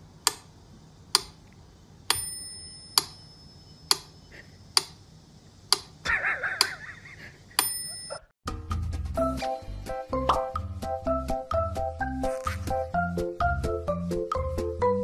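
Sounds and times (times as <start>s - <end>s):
bell-like ring: 2.1s - 3.8s, 7.6s - 8.3s.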